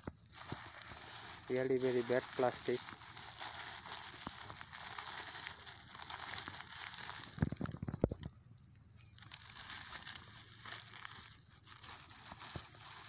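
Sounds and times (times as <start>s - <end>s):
paper and wrappers rustling: 0.2s - 7.8s, 9.2s - 13.0s
crunches and thumps: 7.4s - 8.3s.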